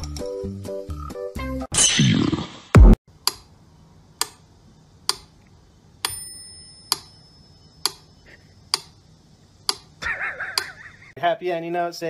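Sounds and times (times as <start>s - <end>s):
faint high ringing tone: 6.0s - 8.3s.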